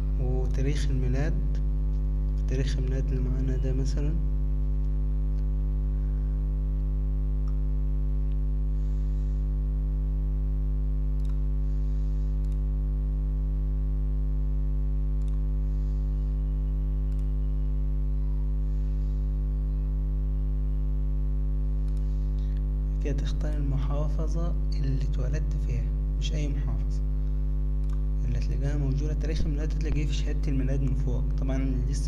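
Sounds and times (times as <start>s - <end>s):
mains hum: 0.0s - 32.0s
computer mouse clicks: 11.2s - 11.4s, 12.4s - 12.6s, 15.2s - 15.4s, 17.1s - 17.3s, 27.8s - 28.0s.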